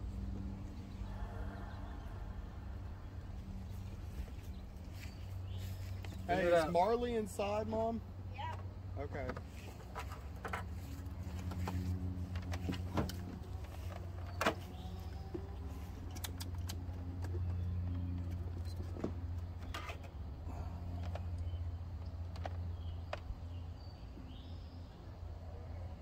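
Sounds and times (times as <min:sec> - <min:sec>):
low hum with pitched tones: 0:00.0 - 0:09.3.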